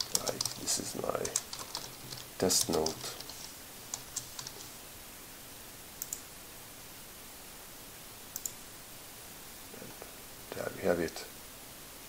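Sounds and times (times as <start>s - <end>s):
faint steady hiss: 0.0s - 12.0s
computer mouse clicks: 6.0s - 6.2s, 8.3s - 8.6s.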